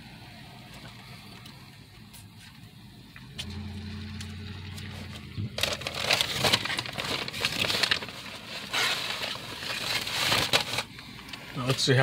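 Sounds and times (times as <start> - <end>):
low steady hum: 0.0 - 12.0
paper wrapper crinkling: 4.8 - 12.0.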